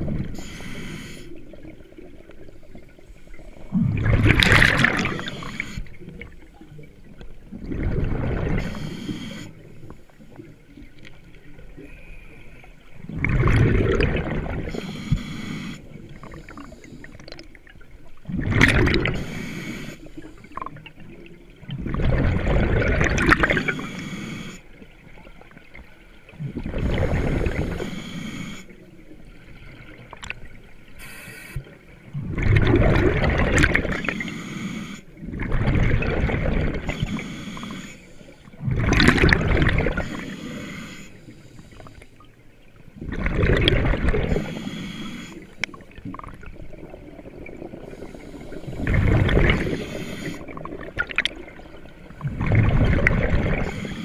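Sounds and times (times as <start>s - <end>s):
diver exhaling bubbles underwater: 3.6s - 5.8s, 7.5s - 8.9s, 13.0s - 15.2s, 18.3s - 19.3s, 21.7s - 23.8s, 26.4s - 27.9s, 32.1s - 34.1s, 35.2s - 37.2s, 38.6s - 40.2s, 43.0s - 44.7s, 46.0s - 54.0s.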